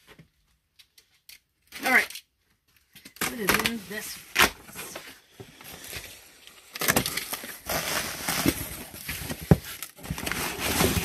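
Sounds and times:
packaging rustling and crinkling: 0:02.7 - 0:11.0.

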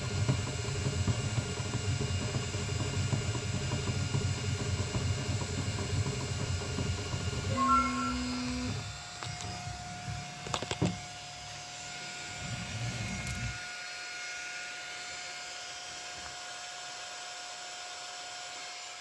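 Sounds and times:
fan whirring hiss and hum: 0:00.0 - 0:16.8
short steady whine: 0:07.5 - 0:08.8.

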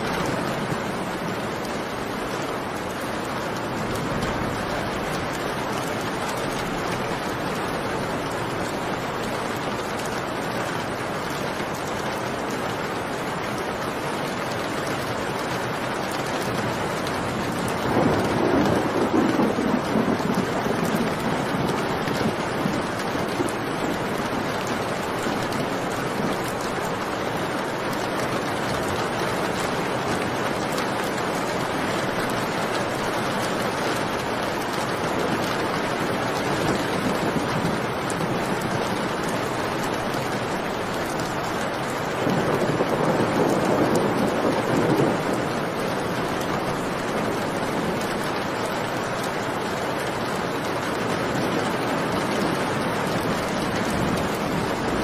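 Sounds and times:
thunder rumbling: 0:00.0 - 0:09.2, 0:17.0 - 0:26.8, 0:28.5 - 0:48.5, 0:51.0 - 0:55.0
steady rain falling: 0:00.0 - 0:55.0.

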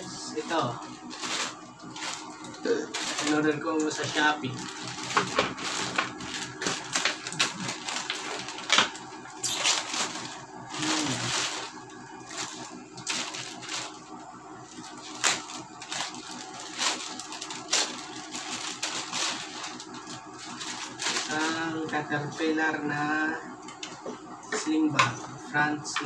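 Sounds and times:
plastic packaging crinkling: 0:00.4 - 0:22.5
plastic mailer tearing: 0:00.5 - 0:14.0, 0:14.7 - 0:21.9.

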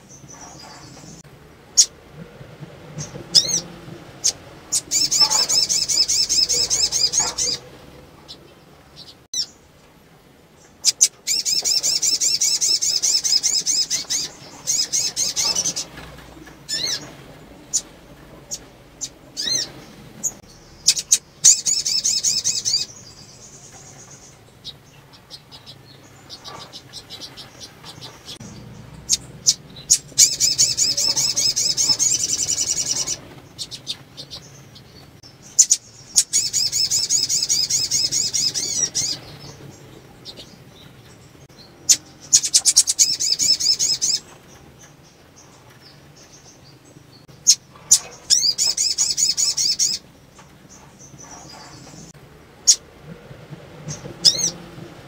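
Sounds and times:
sunbird high trilled calls: 0:03.0 - 0:08.4, 0:09.0 - 0:09.6, 0:10.6 - 0:16.0, 0:16.7 - 0:17.9, 0:18.5 - 0:40.6, 0:41.5 - 0:45.5, 0:47.4 - 0:50.1.

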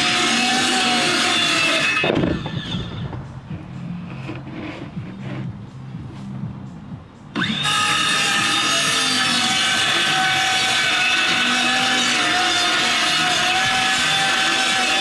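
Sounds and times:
circular saw cutting wood: 0:00.0 - 0:03.0, 0:07.3 - 0:15.0.

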